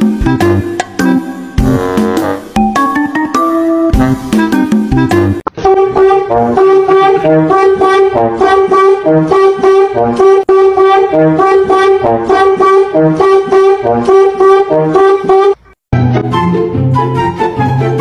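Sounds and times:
background music with beat: 0.0 - 5.6.

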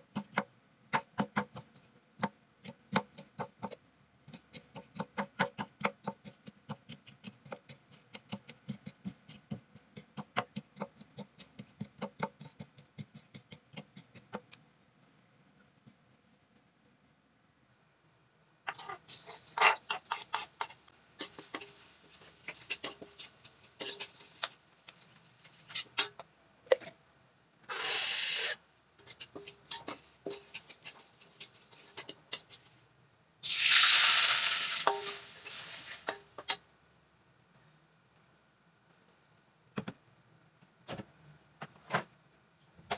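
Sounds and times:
garlic sizzling in hot oil: 18.7 - 26.2, 27.7 - 32.8, 33.4 - 36.6
metal spatula scraping a wok: 18.7 - 26.2, 27.7 - 32.8, 33.5 - 36.6.

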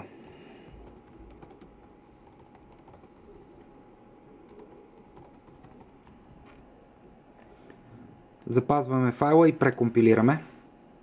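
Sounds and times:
typing on computer keyboard: 0.2 - 3.7, 4.5 - 6.1.

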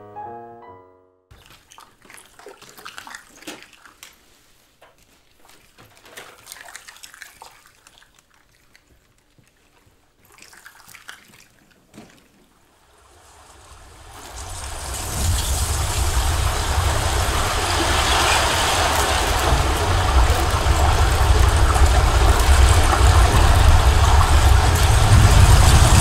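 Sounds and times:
water sloshing in plastic bottles: 1.3 - 12.8.

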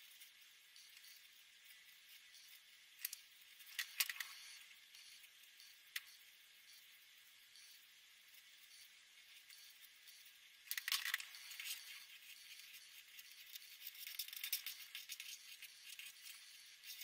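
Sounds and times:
marker pen scratching on paper: 11.3 - 17.0.

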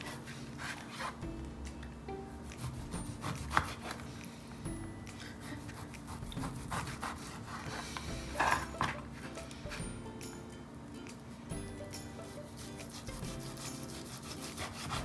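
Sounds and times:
knife slicing meat on plastic board: 2.6 - 4.0, 12.9 - 15.0.

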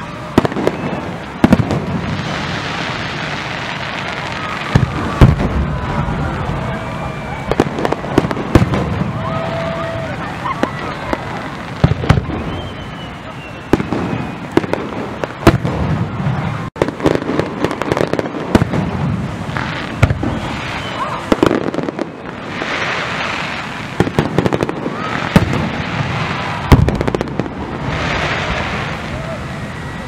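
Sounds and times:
fireworks hissing: 0.0 - 30.0
firework shells bursting: 16.8 - 29.1.

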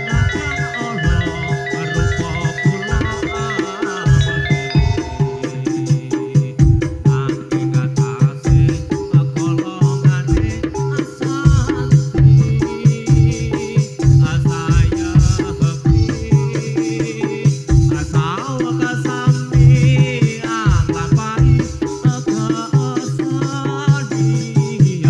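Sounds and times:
held low tones: 0.0 - 7.1
sliding melody line: 0.0 - 8.0
drum strokes: 0.0 - 25.0.

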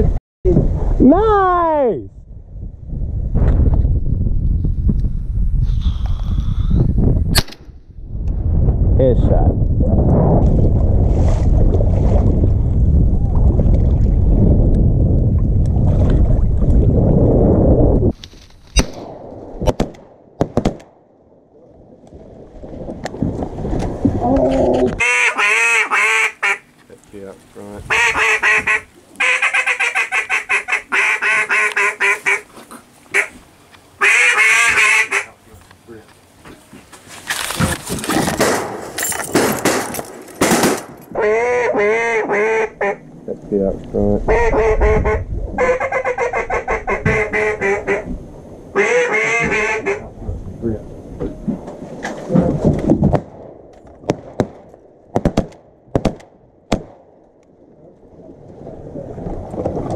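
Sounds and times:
duck call quacking: 25.0 - 26.7, 27.9 - 32.5, 33.1 - 33.4, 34.0 - 35.4, 41.2 - 43.0, 44.3 - 48.1, 48.8 - 50.1
dry brush rustling: 35.4 - 38.4.

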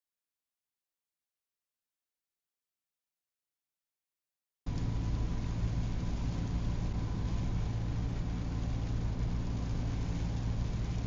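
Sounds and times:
rain and tyre spray hiss: 4.7 - 11.0
vehicle engine and road drone: 4.7 - 11.0.

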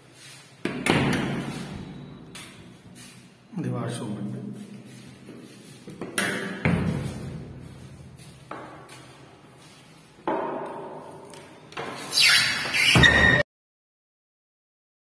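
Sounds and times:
knocks and thuds echoing: 6.2 - 7.5.

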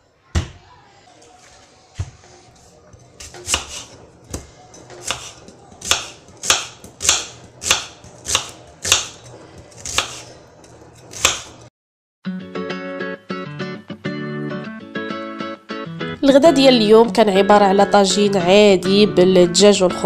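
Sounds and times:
knife cutting onion on wooden board: 2.9 - 11.7.

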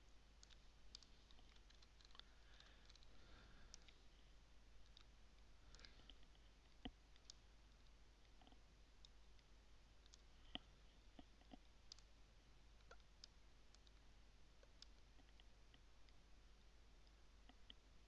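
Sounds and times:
faint mouse clicks: 0.0 - 4.1, 4.8 - 12.1, 12.8 - 16.2, 17.0 - 18.0.

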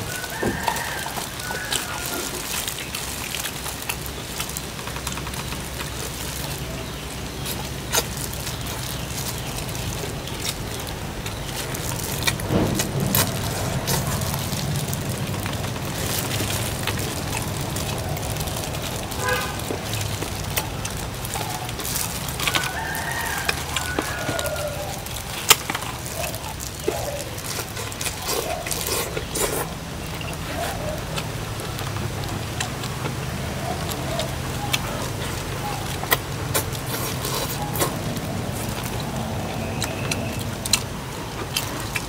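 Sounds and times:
rooster crowing: 0.0 - 2.7, 22.4 - 25.3.

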